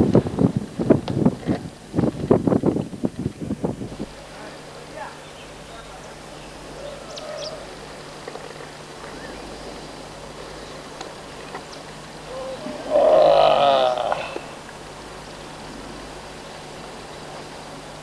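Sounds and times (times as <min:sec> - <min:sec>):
man whooping: 0:12.3 - 0:14.4.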